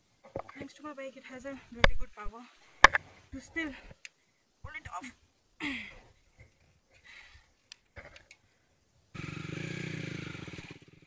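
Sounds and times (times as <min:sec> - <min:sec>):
faint clicks: 0:03.8 - 0:04.2, 0:06.3 - 0:08.6
motorcycle engine running: 0:09.2 - 0:11.0.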